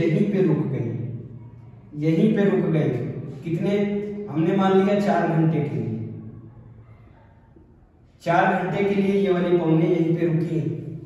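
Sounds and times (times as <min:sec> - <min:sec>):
man lecturing: 0:00.0 - 0:01.1, 0:01.9 - 0:06.1, 0:08.2 - 0:11.0.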